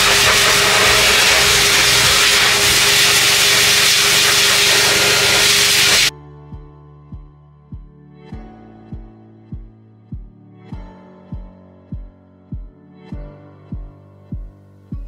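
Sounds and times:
dog dryer rushing hiss: 0.0 - 6.1
soft music with plucked notes: 6.1 - 15.0.

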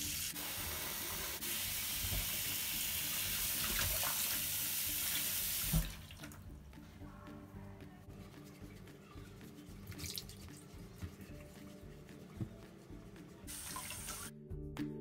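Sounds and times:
soft background music: 0.0 - 15.0
water splashing in a bowl: 9.8 - 11.6.

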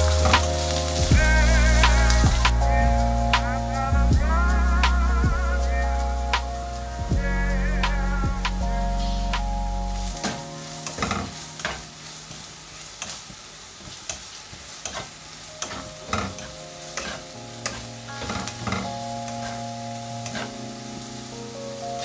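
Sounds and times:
onions sizzling in oil: 0.0 - 2.3, 10.6 - 21.1
spatula scraping frying pan: 14.1 - 18.6.

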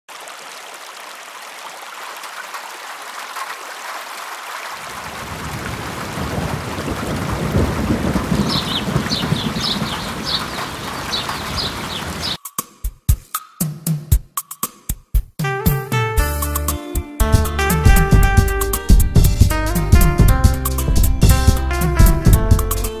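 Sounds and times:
rain hiss: 0.1 - 12.4
low thunder-like rumble: 5.7 - 10.5.

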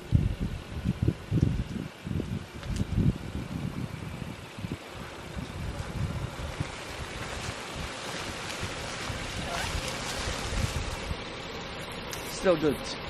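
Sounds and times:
wind buffeting microphone: 0.0 - 11.4
pickup truck engine: 0.0 - 13.0
tyres rolling over mud and leaves: 4.8 - 13.0.

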